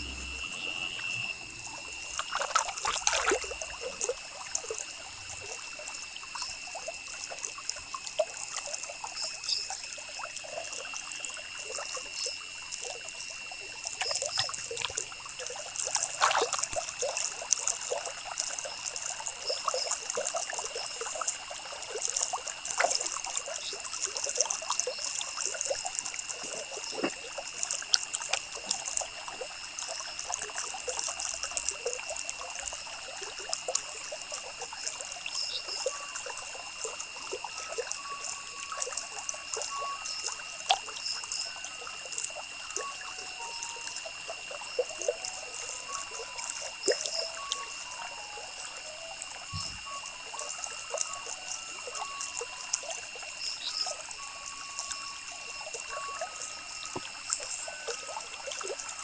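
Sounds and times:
steady high whine: 0:00.0 - 0:05.7.

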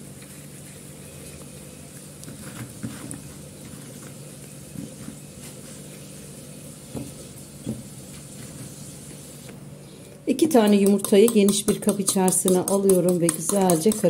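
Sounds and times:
eggplant knocking on cutting board: 0:10.6 - 0:14.0.

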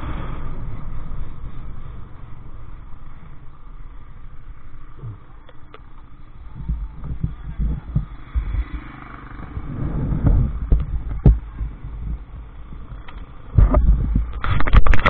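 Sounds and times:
wind rumbling on microphone: 0:00.0 - 0:15.0
camera knocks and thumps: 0:10.2 - 0:12.3.

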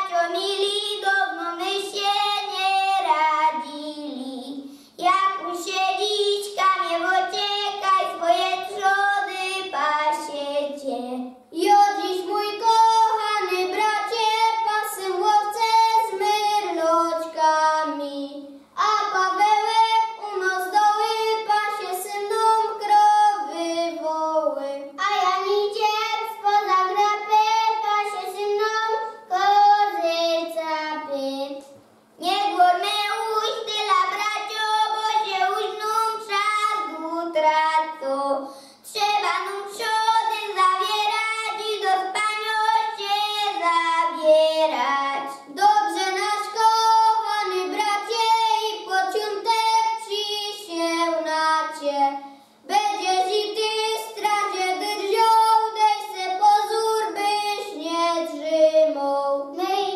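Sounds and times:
children singing together: 0:00.0 - 0:04.6, 0:11.6 - 0:18.0, 0:32.2 - 0:52.1, 0:52.7 - 0:59.9.

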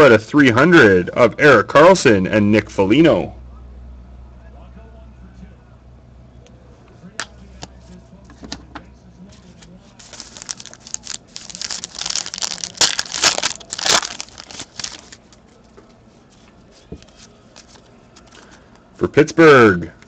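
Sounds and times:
foil wrapper tearing and crinkling: 0:10.0 - 0:15.4.

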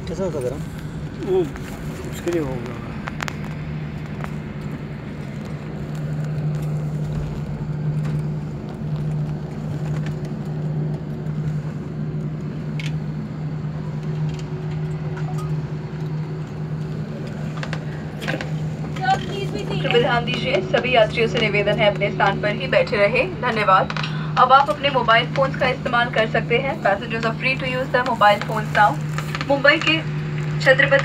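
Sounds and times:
airliner cabin drone: 0:00.0 - 0:31.0.

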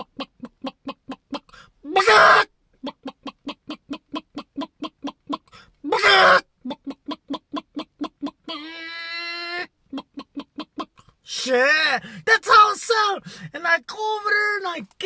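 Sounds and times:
man imitating hen clucking: 0:00.0 - 0:12.0
man squawking: 0:01.3 - 0:13.2.

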